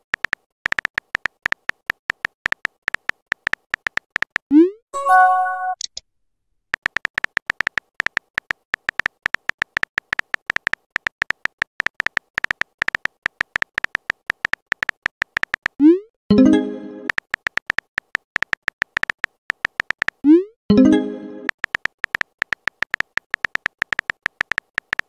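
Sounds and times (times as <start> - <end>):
soft keyboard typing clicks: 0.0 - 4.4, 6.7 - 15.9, 17.0 - 25.0
short electronic chime: 5.0 - 5.8.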